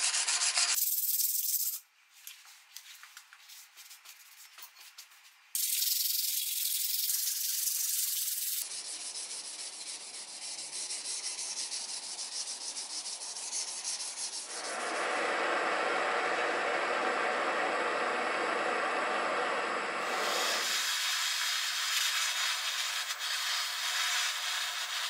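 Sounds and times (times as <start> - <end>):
torch flame hissing: 14.5 - 25.0
steel wool rubbing on metal: 20.1 - 25.0.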